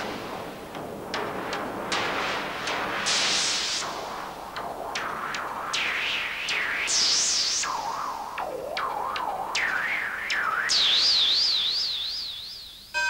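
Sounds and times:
synthesizer swoops and warbles: 4.9s - 12.6s.

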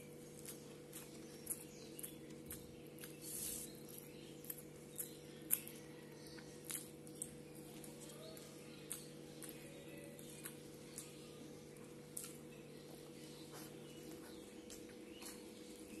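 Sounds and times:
faint steady hum: 0.0s - 16.0s
fingers mixing rice on a leaf: 0.0s - 16.0s
wet chewing clicks: 0.0s - 16.0s
lip smacks: 0.4s - 5.8s, 6.4s - 11.2s, 12.1s - 12.5s.

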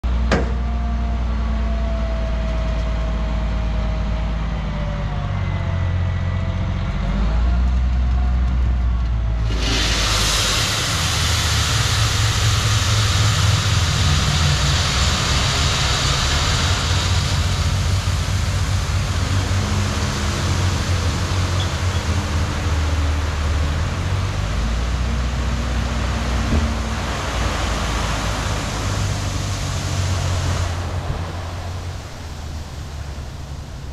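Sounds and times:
diesel engine whining: 0.0s - 33.9s
gravel pouring from truck: 9.4s - 33.9s.

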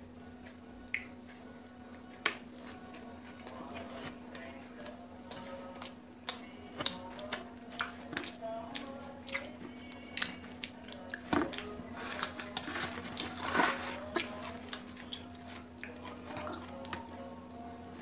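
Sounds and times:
steady low hum: 0.0s - 18.0s
mouth chewing clicks and smacks: 0.9s - 1.1s, 8.7s - 11.7s.

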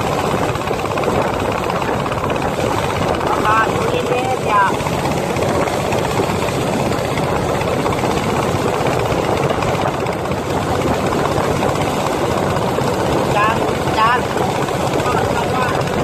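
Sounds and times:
motorboat engine running: 0.0s - 16.0s
water rushing past hull: 0.0s - 16.0s.

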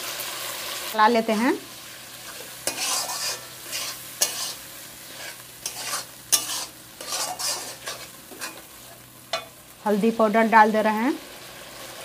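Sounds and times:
low sizzle of frying: 0.0s - 12.0s
metal spatula scraping a pan: 2.2s - 9.6s
spatula clacking on pan: 2.3s - 4.6s, 5.2s - 8.7s, 9.3s - 9.6s.

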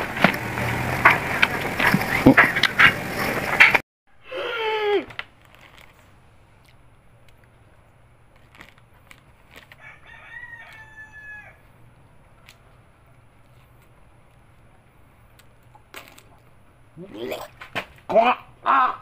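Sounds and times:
rooster crowing: 9.8s - 11.7s.

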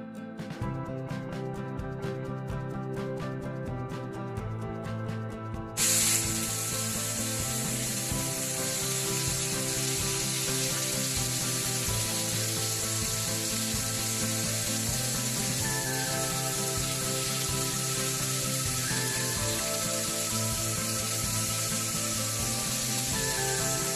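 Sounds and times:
background music: 0.0s - 23.9s
chicken deep-frying in oil: 5.8s - 23.9s.

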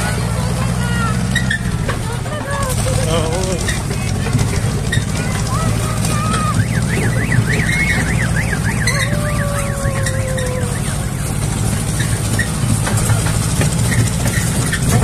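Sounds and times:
tractor engine running: 0.0s - 15.0s
warbling siren-like tone: 5.6s - 11.3s.

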